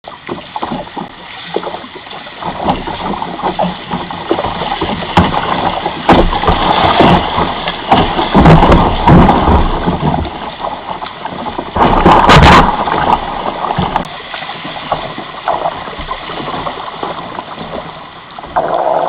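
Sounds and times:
water slapping kayak hull: 0.0 - 19.0
river water rushing: 10.5 - 19.0.

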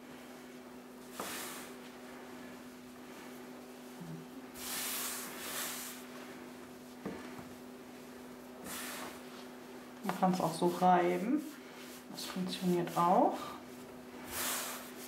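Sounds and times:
steady low hum: 0.0 - 15.0
hands rubbing dough: 0.1 - 15.0.

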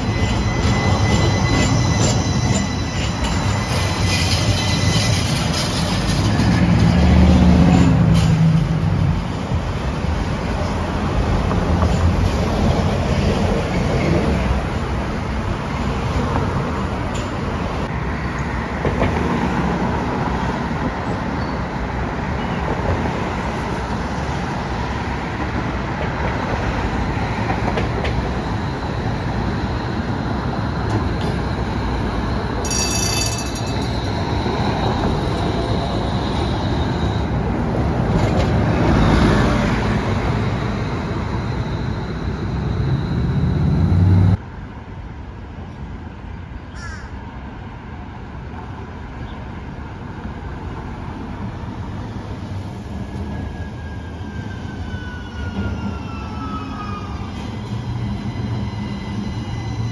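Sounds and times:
streetcar running on rails: 0.0 - 59.9
passing car traffic: 33.5 - 45.6.

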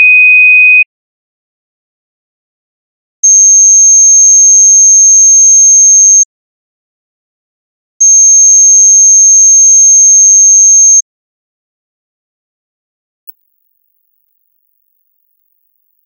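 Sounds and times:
high-pitched sine test tone: 0.0 - 0.8.

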